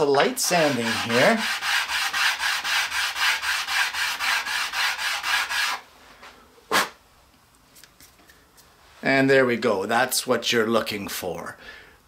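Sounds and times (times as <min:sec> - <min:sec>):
wooden block rubbed on sandpaper: 0:00.3 - 0:05.8.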